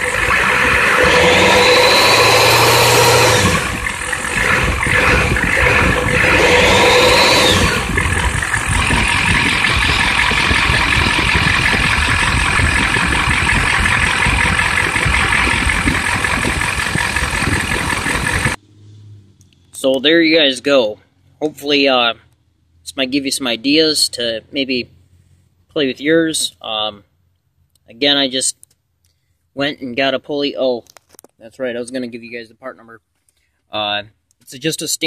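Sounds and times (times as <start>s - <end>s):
diesel engine idling: 0.0s - 18.6s
diesel engine revving: 0.0s - 20.5s.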